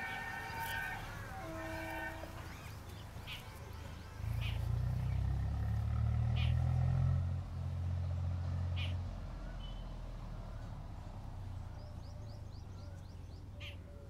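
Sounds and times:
birds chirping: 0.0 - 6.8, 11.4 - 14.0.

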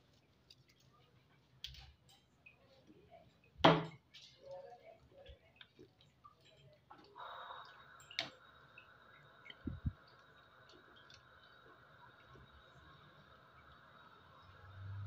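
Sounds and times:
steady hiss: 7.2 - 15.0.

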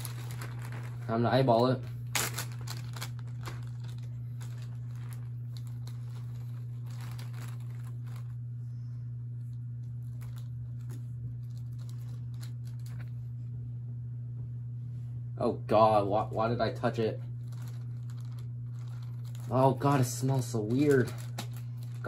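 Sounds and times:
plastic bag crinkling: 0.0 - 8.6, 9.4 - 13.3, 17.2 - 22.0
steady low hum: 0.0 - 22.0.

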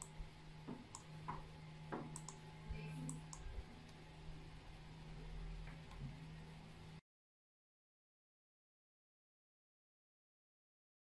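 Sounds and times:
steady low hum: 0.0 - 7.0
computer mouse clicks: 2.1 - 2.4, 3.0 - 3.5.

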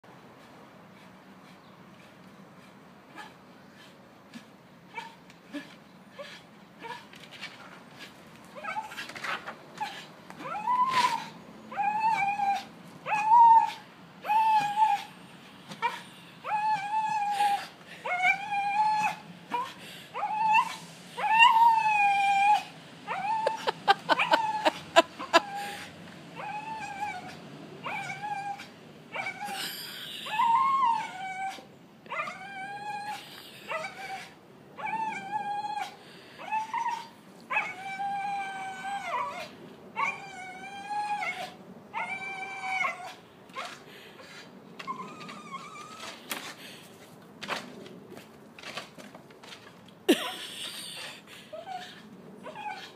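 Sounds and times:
dog whining and yelping: 8.6 - 15.1, 15.8 - 46.5, 49.4 - 52.9.

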